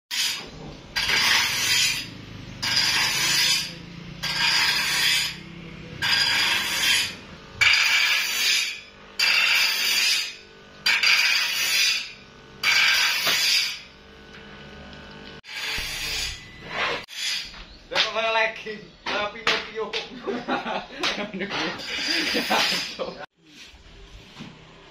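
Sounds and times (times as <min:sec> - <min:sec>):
grinder scraping steel blade: 0:00.1 - 0:17.6, 0:21.4 - 0:23.9
grinder motor humming: 0:00.2 - 0:17.8, 0:20.2 - 0:23.2.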